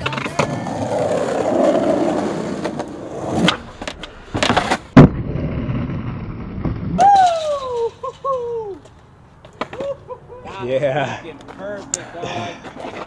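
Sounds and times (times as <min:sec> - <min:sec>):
skateboard scraping on ledge: 0:00.0 - 0:06.9
skateboard landing impact: 0:00.0 - 0:07.3
skateboard wheels rolling on concrete: 0:00.0 - 0:13.0.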